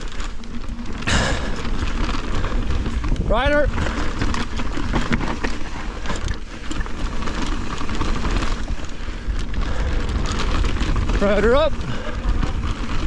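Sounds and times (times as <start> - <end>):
bike rattling and clicking: 0.0 - 13.0
bike tyre noise on dirt: 0.0 - 13.0
wind rumble on microphone: 1.1 - 6.4, 7.0 - 13.0.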